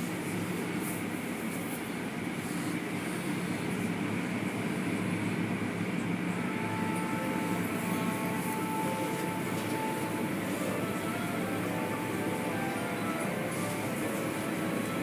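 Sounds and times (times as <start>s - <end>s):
car wash rumbling: 0.0s - 15.0s
thin high tone: 6.3s - 15.0s.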